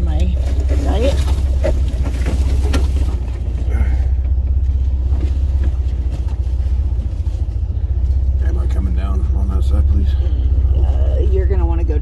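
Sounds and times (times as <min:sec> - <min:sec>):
vehicle engine rumbling: 0:00.0 - 0:12.0.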